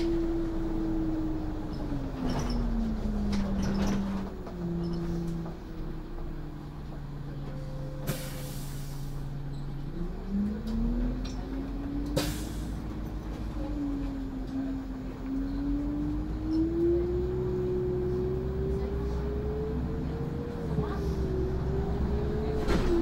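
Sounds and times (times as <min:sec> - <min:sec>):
bus diesel engine: 0:00.0 - 0:23.0
short air hiss: 0:08.1 - 0:09.2.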